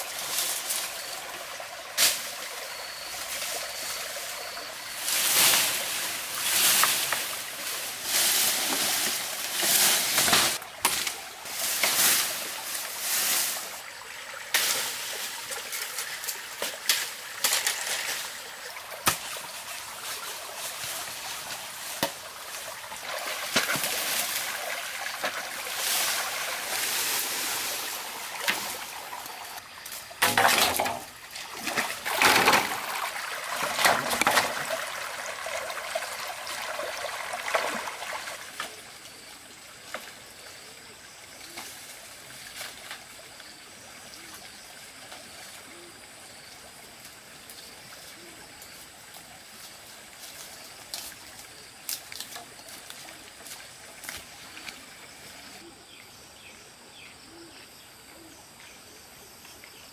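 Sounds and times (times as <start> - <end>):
bamboo dragged through dry leaves: 0.0 - 38.8
stream trickling: 0.0 - 55.6.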